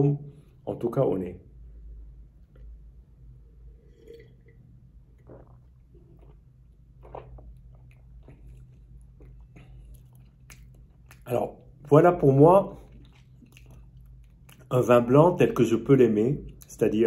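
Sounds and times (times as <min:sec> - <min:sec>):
person sipping wine: 0:03.6 - 0:11.2
wet mouth noises: 0:05.1 - 0:11.8.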